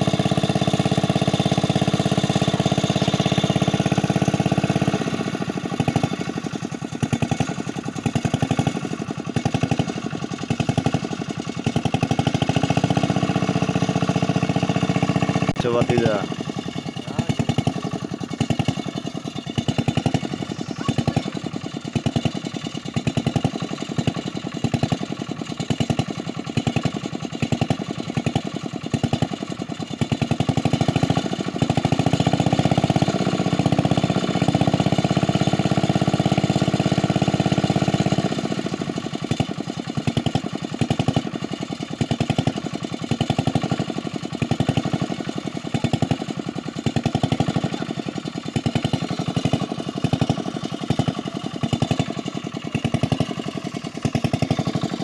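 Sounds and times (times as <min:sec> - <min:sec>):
small engine running: 0:00.0 - 0:55.0.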